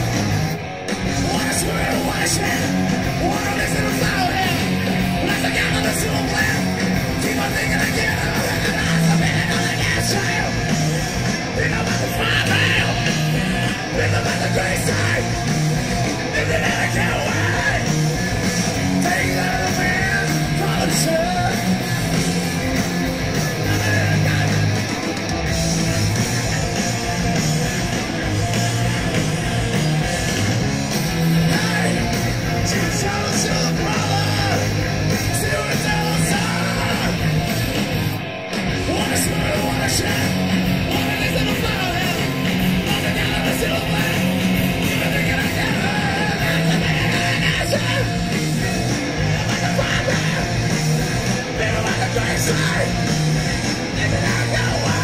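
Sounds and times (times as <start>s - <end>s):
bass guitar: 0.0s - 55.0s
drums: 0.0s - 55.0s
electric guitar: 0.0s - 55.0s
person singing: 1.1s - 10.7s, 11.5s - 15.5s, 16.3s - 18.0s, 18.8s - 22.4s, 31.4s - 37.4s, 38.7s - 53.1s, 53.8s - 55.0s.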